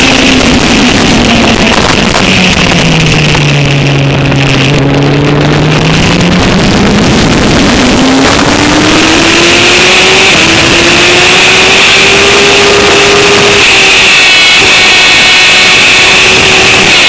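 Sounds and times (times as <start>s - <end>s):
wind rush: 0.0s - 13.6s
motorcycle engine accelerating: 0.0s - 17.0s.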